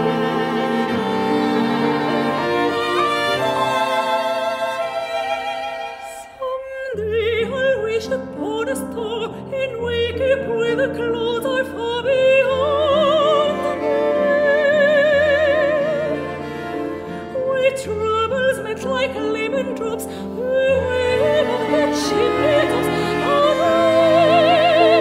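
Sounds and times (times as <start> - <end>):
sustained instrumental accompaniment: 0.0 - 6.4
operatic singing voice: 17.3 - 25.0.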